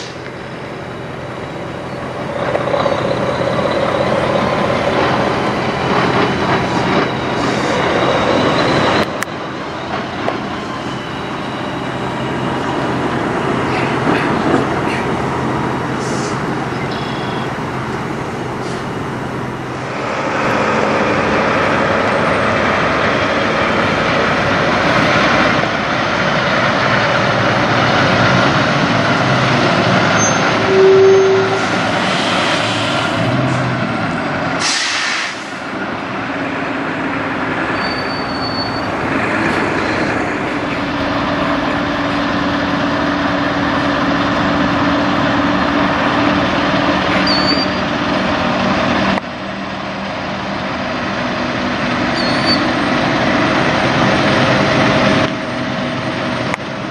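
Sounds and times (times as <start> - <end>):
diesel truck engines running: 0.0 - 56.9
air brake hiss: 16.0 - 16.4, 32.0 - 33.1, 34.6 - 35.6
brief tone: 16.8 - 17.5, 30.2 - 31.7, 37.7 - 38.9, 47.2 - 47.8, 52.2 - 52.7.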